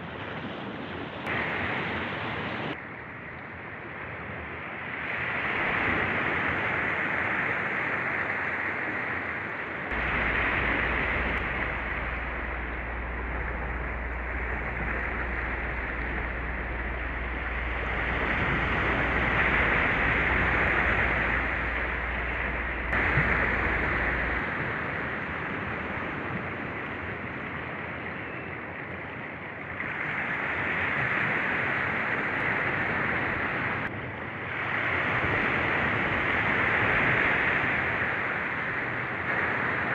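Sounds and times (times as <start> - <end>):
small waves breaking on beach: 0.0 - 39.9.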